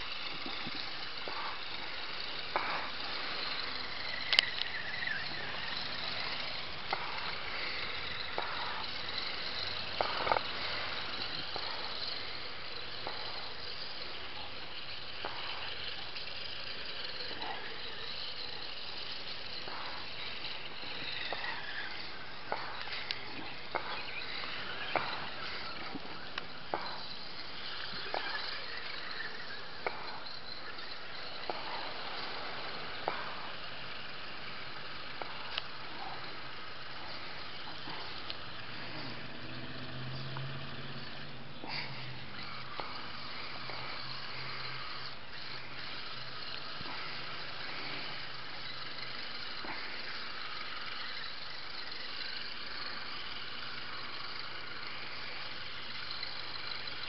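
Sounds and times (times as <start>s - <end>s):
low hum: 0.0s - 57.0s
steady rain hiss: 0.0s - 57.0s
toy car motor whining: 0.0s - 57.0s
sharp taps: 6.8s - 12.2s, 24.9s - 27.2s, 29.8s - 30.3s, 33.0s - 33.5s.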